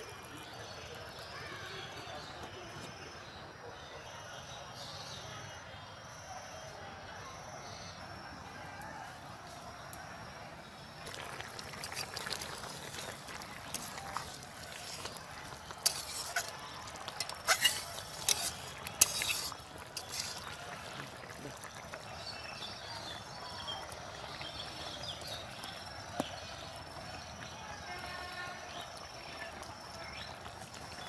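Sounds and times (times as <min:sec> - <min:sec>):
curry simmering: 0:00.0 - 0:04.6, 0:07.2 - 0:31.0
metal spatula clinking and scraping: 0:13.7 - 0:20.6.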